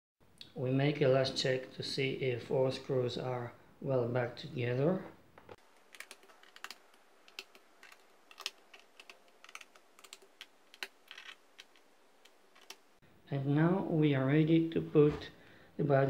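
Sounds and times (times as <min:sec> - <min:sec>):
screwdriver clicking on screws: 0:05.8 - 0:12.8.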